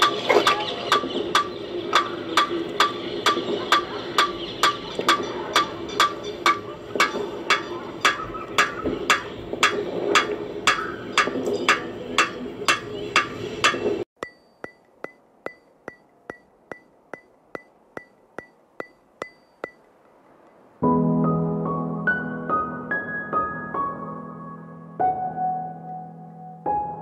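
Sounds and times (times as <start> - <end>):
wood-block ticking beat: 0.0 - 20.6.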